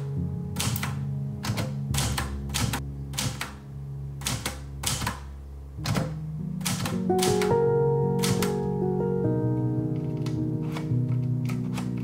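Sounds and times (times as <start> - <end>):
soft background music: 0.0 - 12.0
typewriter key strikes: 0.6 - 3.5, 4.2 - 7.6.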